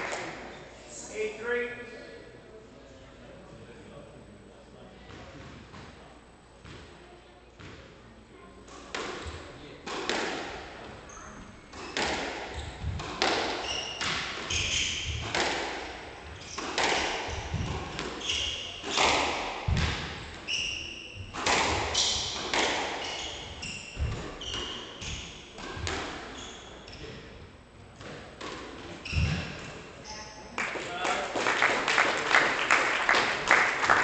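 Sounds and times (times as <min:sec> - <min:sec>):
squash ball cracking off walls: 0:11.7 - 0:15.9, 0:16.5 - 0:18.2, 0:18.8 - 0:20.2, 0:21.3 - 0:23.0.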